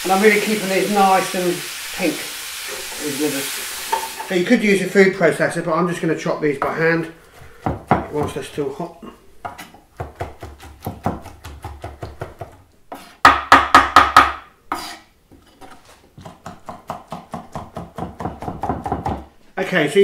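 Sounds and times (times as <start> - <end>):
knife chopping on wooden board: 9.4 - 15.0, 15.6 - 19.3.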